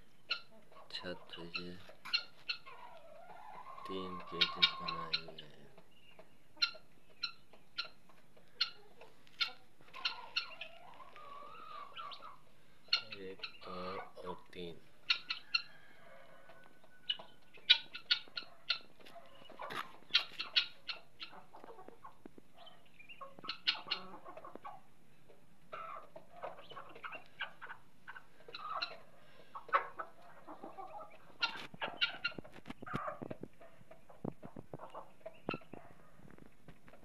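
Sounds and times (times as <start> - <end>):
chickens clucking: 0.0 - 37.0.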